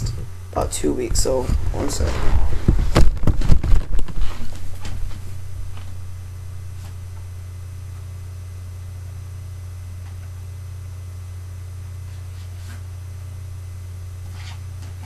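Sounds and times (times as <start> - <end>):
steady low hum: 0.0 - 15.0
knocks and thumps: 1.5 - 5.0.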